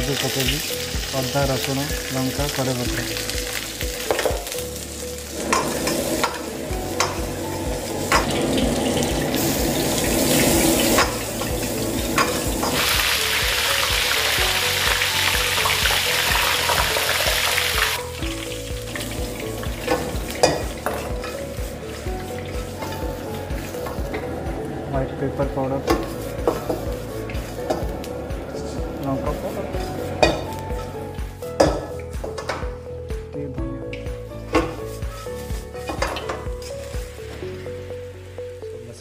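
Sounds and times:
spices sizzling in hot oil: 0.0 - 33.1, 33.9 - 39.0
ladle knocking and scraping a pan: 4.0 - 4.6, 5.4 - 13.9, 18.9 - 24.4, 25.8 - 28.1, 29.8 - 32.8, 34.0 - 37.4.

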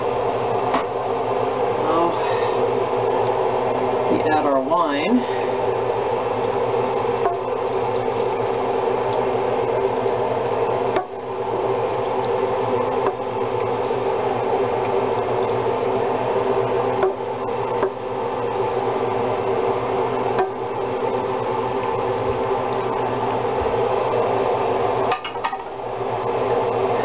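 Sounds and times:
steady mechanical hum: 0.0 - 27.0.

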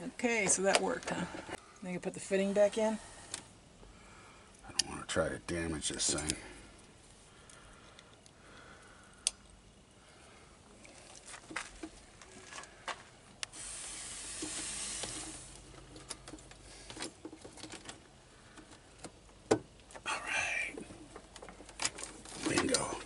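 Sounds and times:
steady air hiss: 2.4 - 4.5, 13.4 - 15.9.

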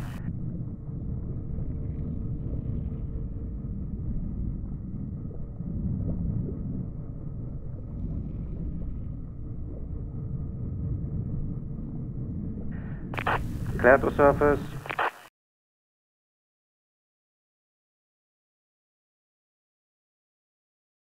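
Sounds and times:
underwater machinery rumble: 0.0 - 15.0
faint steady hum: 0.0 - 15.3.

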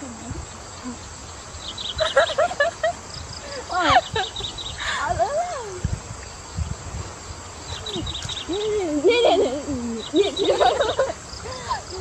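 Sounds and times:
insects chirping: 0.0 - 12.0
young women chattering: 3.5 - 5.9, 7.8 - 12.0.

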